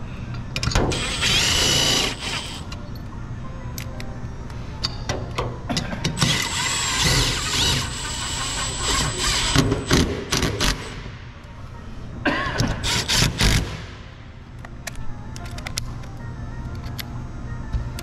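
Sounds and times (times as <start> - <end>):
cordless drill driving fasteners: 0.9 - 2.7, 6.2 - 11.0.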